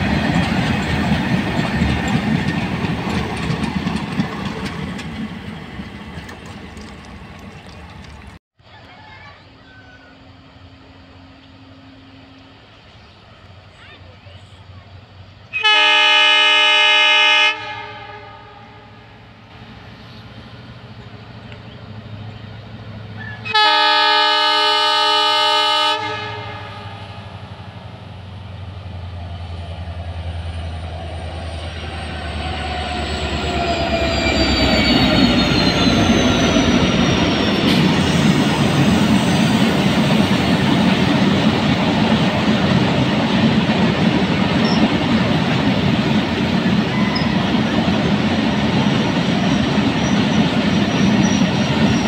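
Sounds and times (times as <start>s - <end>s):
freight wagons wheel clatter: 0.0s - 9.3s
diesel locomotive engine rumbling: 0.0s - 52.0s
locomotive horn: 15.4s - 19.3s, 23.2s - 27.4s.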